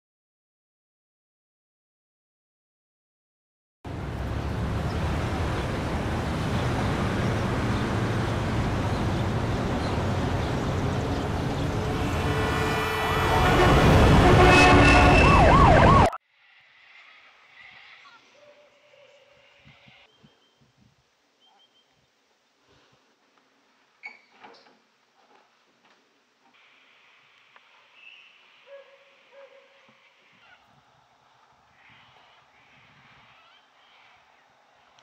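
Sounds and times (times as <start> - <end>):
passing vehicles rumbling: 3.9 - 18.0
small bird chirping faintly: 16.6 - 22.2, 26.6 - 30.8.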